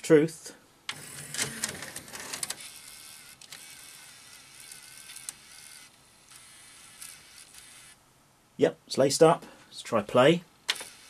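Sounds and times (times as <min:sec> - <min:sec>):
tape deck mechanism clicks: 0:00.9 - 0:05.7, 0:10.7 - 0:11.0
small motor whirring: 0:00.9 - 0:08.0, 0:10.7 - 0:11.0.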